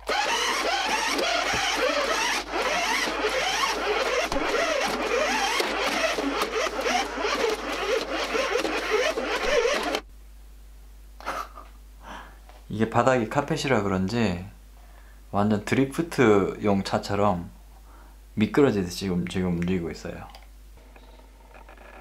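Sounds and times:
toy car electric motor whirring: 0.0 - 10.0.

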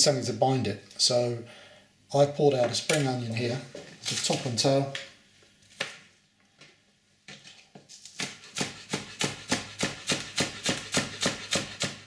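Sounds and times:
knife chopping on cutting board: 8.1 - 12.0.

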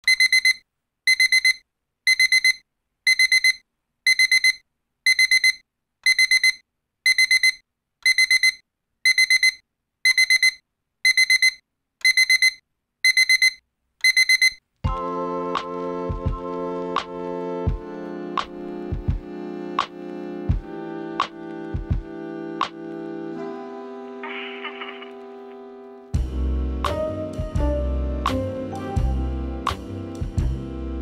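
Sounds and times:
high-pitched alarm beeps: 0.1 - 14.6.

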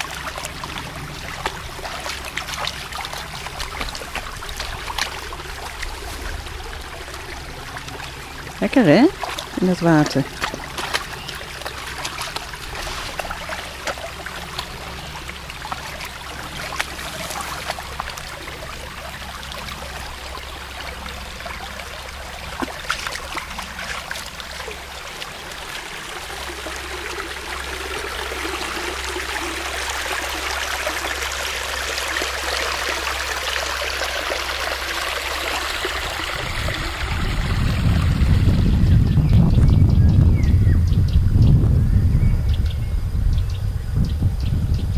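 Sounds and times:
dog splashing through water: 0.0 - 38.3
brook water trickling: 0.0 - 41.4
low rumble: 36.0 - 44.9.

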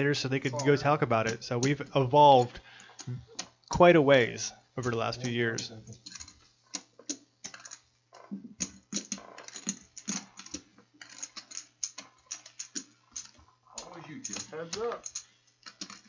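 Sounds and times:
small clicks and clacks: 4.8 - 16.0.

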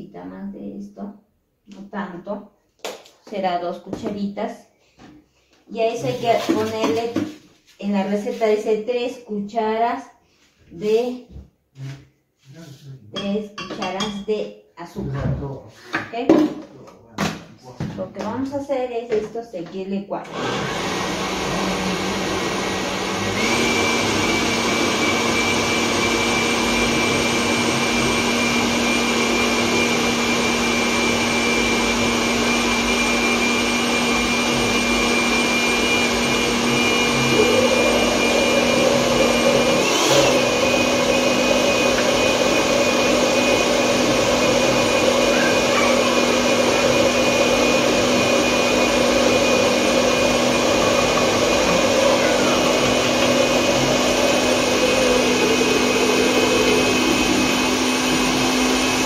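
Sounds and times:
blender motor whining: 20.2 - 59.0.

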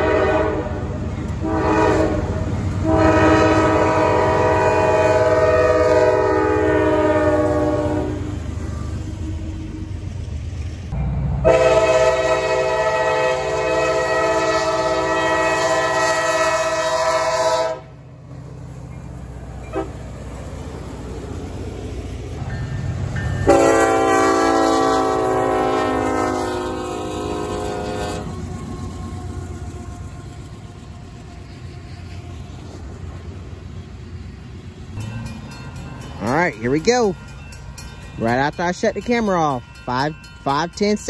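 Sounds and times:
locomotive air horn blasts: 0.0 - 9.5, 11.4 - 18.0, 19.7 - 20.0, 23.4 - 28.5
freight train rumbling past: 0.0 - 41.0.

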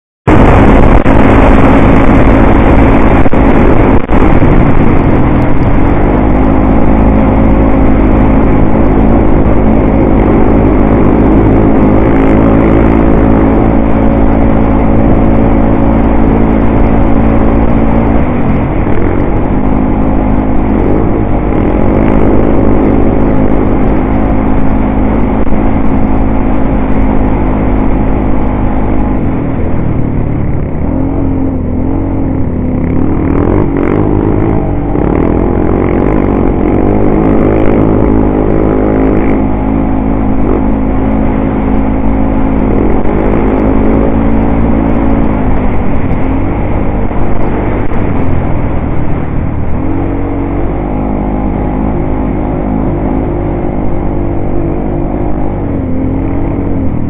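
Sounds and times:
atv engine droning: 0.2 - 57.0
rush of noise: 0.2 - 57.0.

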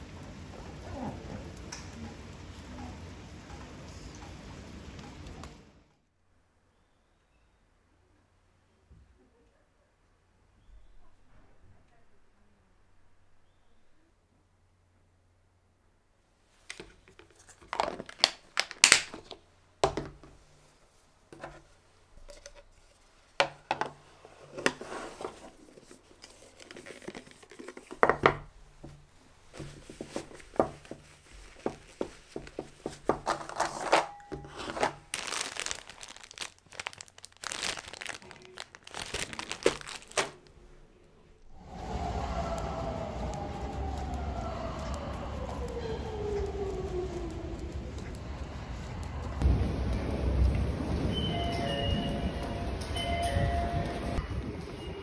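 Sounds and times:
cloth wrap rustling: 16.5 - 19.3, 24.0 - 40.8.

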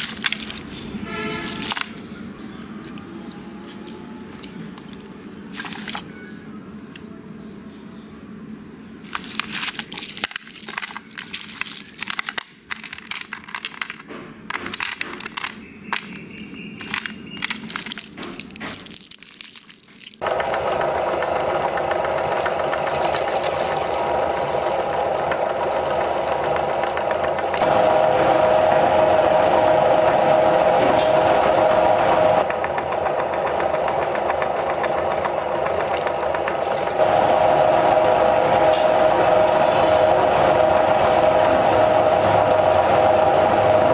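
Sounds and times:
candy wrappers crinkling: 0.0 - 2.1, 5.5 - 6.1, 9.0 - 16.1, 16.8 - 20.2, 22.4 - 24.2
hard sweets clicking: 9.0 - 27.8, 32.2 - 37.0
loud steady whine: 20.2 - 43.9
meat grinder grinding: 20.2 - 43.9.

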